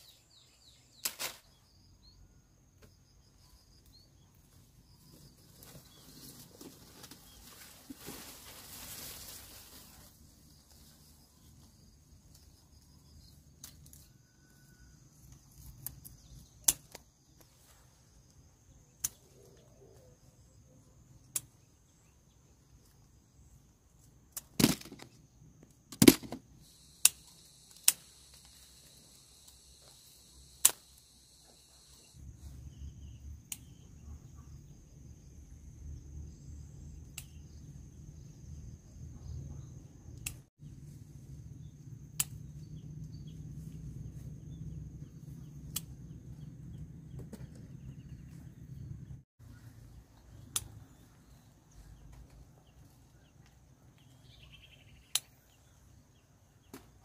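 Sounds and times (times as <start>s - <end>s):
sharp clicks and snaps: 40.2s - 40.5s.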